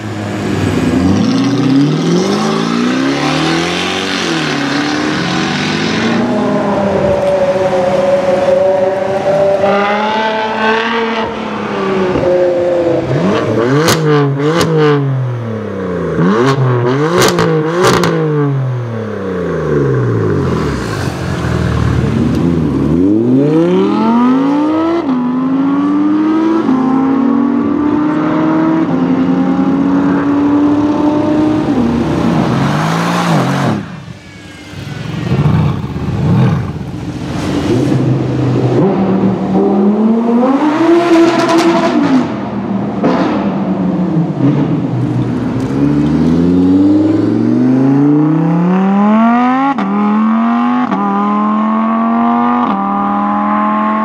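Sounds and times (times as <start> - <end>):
car engines revving: 0.0 - 54.0
car accelerating through gears: 35.4 - 42.5.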